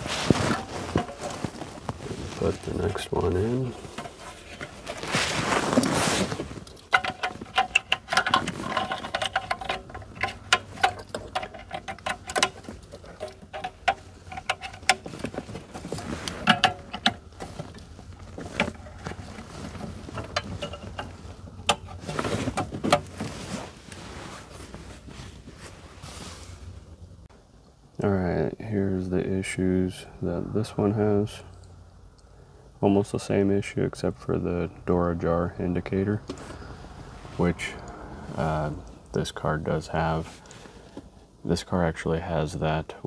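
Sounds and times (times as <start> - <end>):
metal case being handled: 0.0 - 26.0
plastic connectors clicking and rattling: 6.6 - 19.2.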